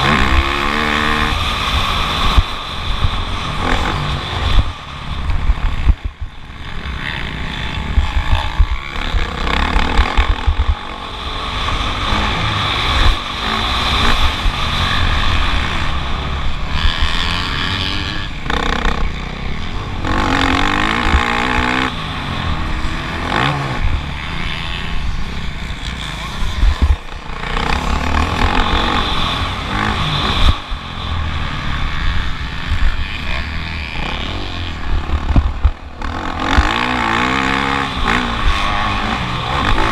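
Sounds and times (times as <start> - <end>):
motocross bike engine revving: 0.0 - 39.9
wind buffeting microphone: 26.2 - 33.2.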